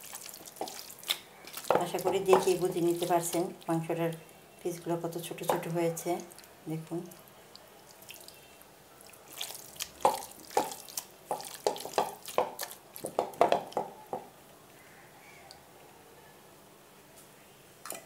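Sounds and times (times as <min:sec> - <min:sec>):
hand squelching meat in marinade: 0:00.0 - 0:03.6, 0:09.0 - 0:13.3.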